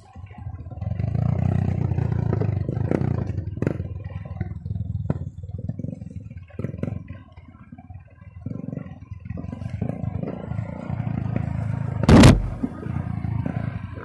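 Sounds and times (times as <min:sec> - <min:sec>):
knocks and clatter from bike: 0:00.1 - 0:14.0
motorcycle engine pulling hard: 0:08.4 - 0:13.9.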